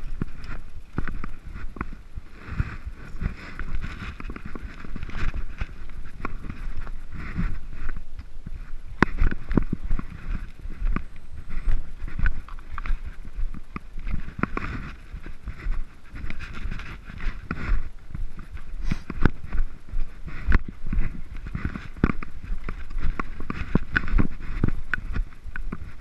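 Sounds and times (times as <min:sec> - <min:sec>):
wind rumbling on microphone: 0:00.0 - 0:26.0
mountain bike rattling over rocks: 0:02.9 - 0:07.5.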